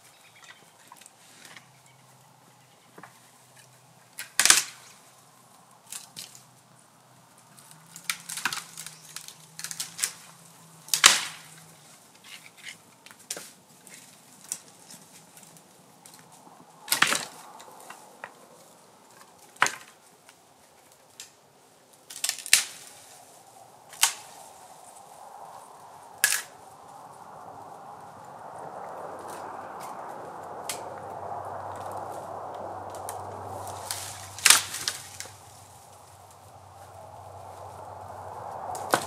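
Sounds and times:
sharp cracks and knocks: 0:04.2 - 0:05.0, 0:07.5 - 0:10.3, 0:10.9 - 0:11.7, 0:16.9 - 0:18.4, 0:19.1 - 0:20.4, 0:22.0 - 0:22.9, 0:23.9 - 0:24.5, 0:26.2 - 0:26.6, 0:29.2 - 0:31.1, 0:31.7 - 0:36.1, 0:38.6 - 0:39.0.

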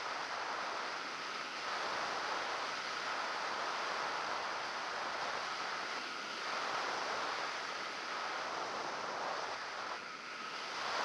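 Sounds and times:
wind noise on microphone: 0:00.0 - 0:11.0.

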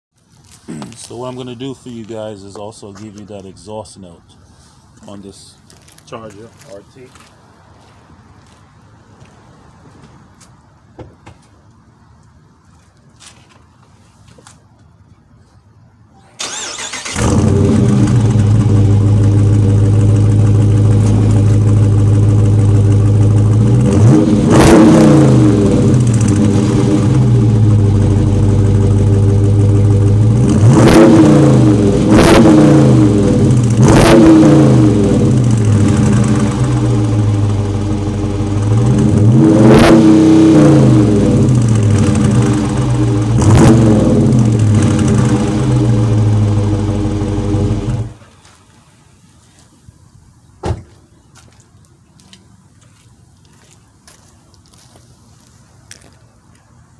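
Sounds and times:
car engine idling and revving: 0:16.5 - 0:48.2.

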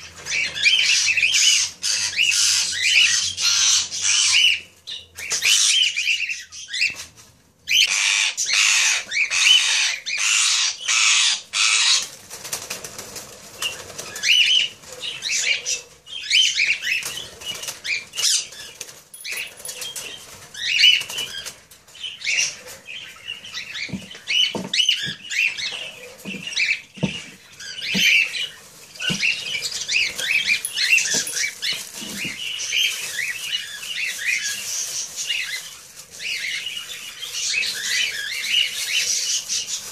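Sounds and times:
parakeets squawking and calling: 0:00.0 - 0:07.0, 0:07.7 - 0:39.9
wings flapping: 0:12.0 - 0:15.0.

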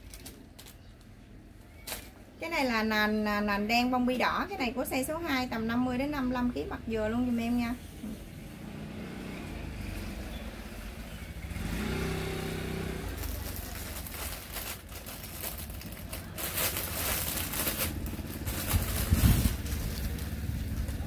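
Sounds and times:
plastic bag rustling and crinkling: 0:00.0 - 0:01.0, 0:01.7 - 0:02.3, 0:13.0 - 0:21.0
low rumble: 0:13.1 - 0:21.0.

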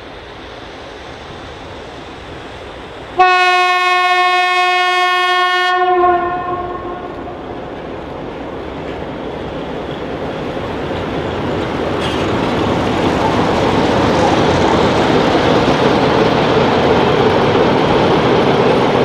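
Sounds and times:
diesel locomotive engine running: 0:00.0 - 0:19.0
steel wheels on rails: 0:06.6 - 0:19.0.

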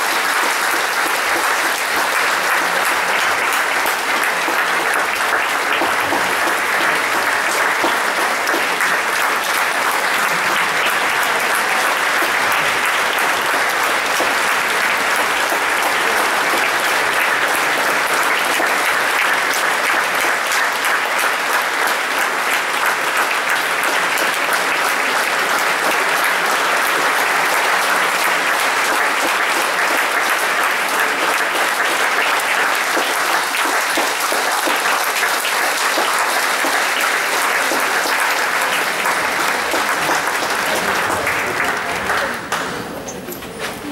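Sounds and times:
audience applauding: 0:00.0 - 0:43.9.

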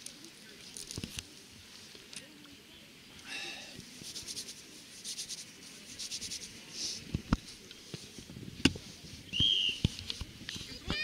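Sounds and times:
quick rubbing strokes: 0:03.8 - 0:08.2.

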